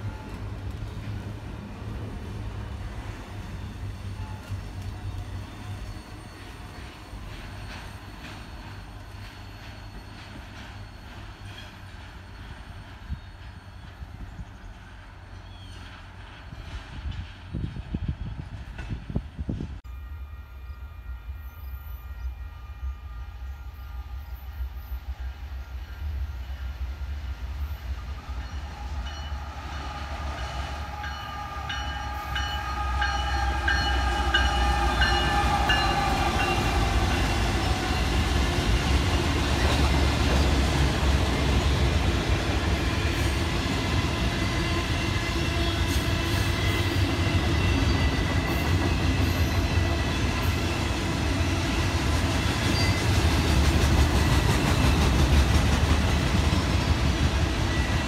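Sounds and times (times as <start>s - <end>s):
steel wheels on rail: 0.0s - 19.8s, 20.6s - 58.0s
diesel locomotive rumble: 28.0s - 58.0s.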